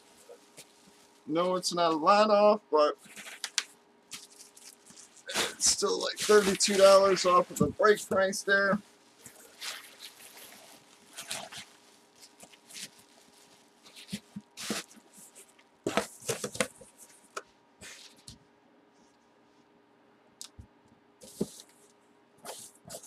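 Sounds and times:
bubble wrap rustling and crinkling: 0.0 - 1.3, 3.0 - 18.4, 22.4 - 23.0.

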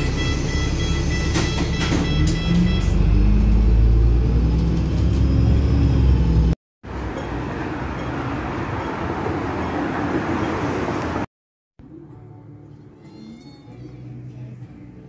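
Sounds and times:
bus engine rumble: 0.0 - 11.3
city street noise: 0.0 - 15.0.

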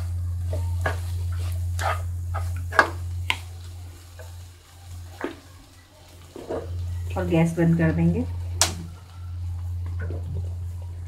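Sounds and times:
low hum: 0.0 - 11.0
wooden spatula scraping pan: 0.8 - 3.0.

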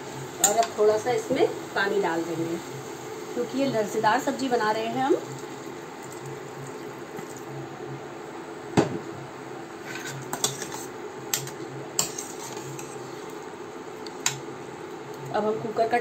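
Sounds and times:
spoon stirring in metal pot: 9.8 - 13.0.

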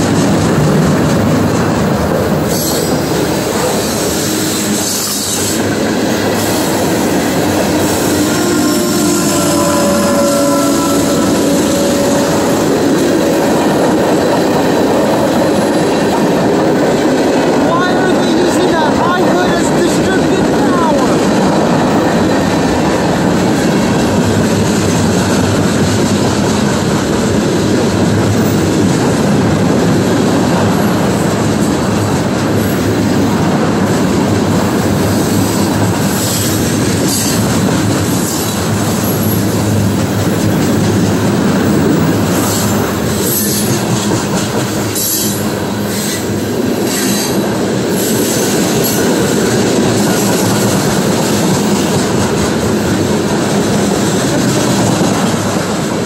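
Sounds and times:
rumble of train wheels on rail: 0.0 - 56.0
short high-pitched squeals: 7.9 - 12.8.

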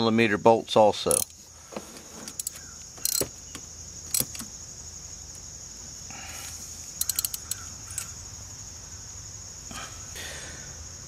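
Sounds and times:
high insect chirring: 0.7 - 11.0
metal tools clinking: 1.1 - 1.4, 2.2 - 3.3, 7.0 - 8.1
socket ratchet clicking: 1.1 - 1.4, 2.3 - 4.6, 7.0 - 8.2.

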